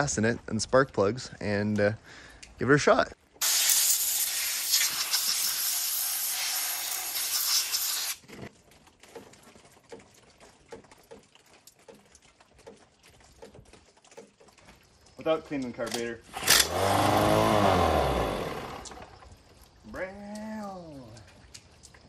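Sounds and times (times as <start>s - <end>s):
spray hissing: 3.4s - 8.2s.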